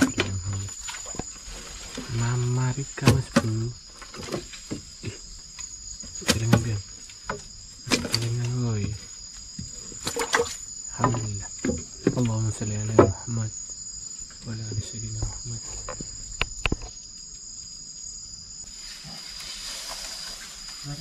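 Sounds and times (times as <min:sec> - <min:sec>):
man's low voice murmuring: 0:00.0 - 0:00.7, 0:02.1 - 0:03.8, 0:11.0 - 0:13.5, 0:14.5 - 0:15.9
night insects chirring: 0:00.0 - 0:21.0.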